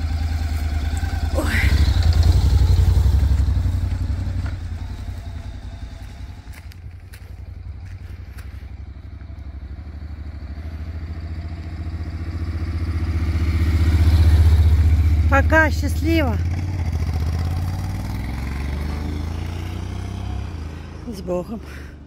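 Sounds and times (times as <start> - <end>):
motorcycle engine at low revs: 0.0 - 22.0.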